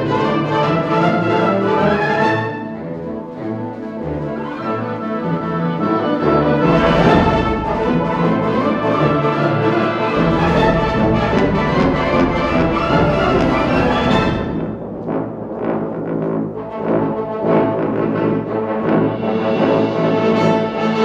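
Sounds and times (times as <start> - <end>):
wind band playing symphonic music: 0.0 - 21.0
deep bass notes: 6.6 - 17.9.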